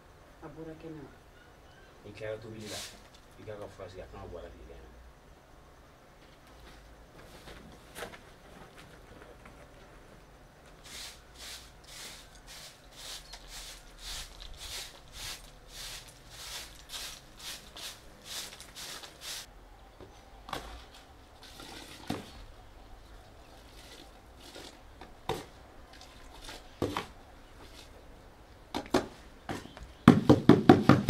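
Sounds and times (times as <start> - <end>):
broom sweeping dirt: 2.5 - 3.2, 10.7 - 19.5, 20.6 - 22.5, 23.5 - 28.0.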